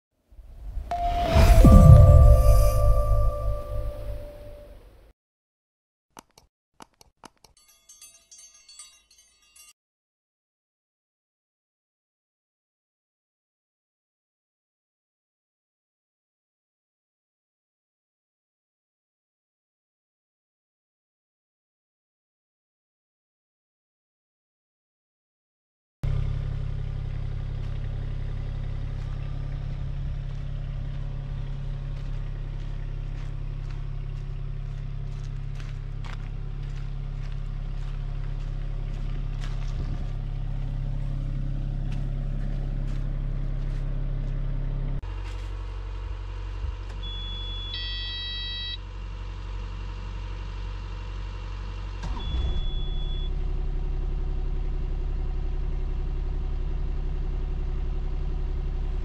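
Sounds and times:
short electronic beeps: 0.7 - 4.8, 47.0 - 48.8, 52.2 - 53.3
diesel engine running: 26.1 - 59.0.

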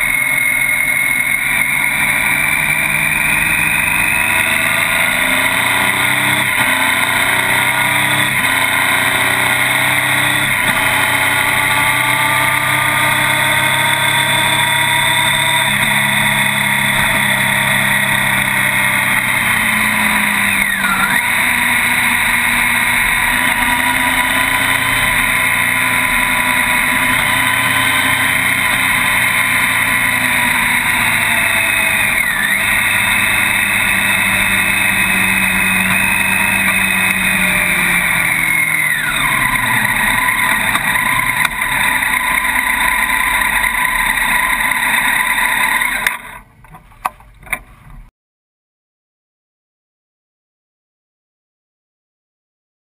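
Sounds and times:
motorcycle engine running: 0.0 - 48.1.

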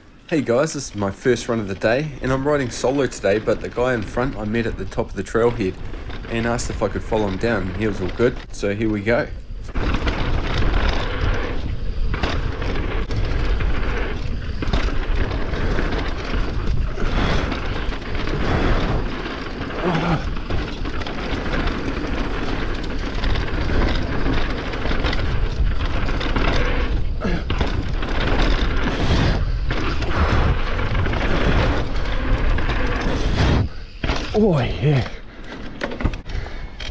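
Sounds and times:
tyres rolling over dirt: 0.0 - 36.9
bike knocks and rattles: 0.4 - 36.9.

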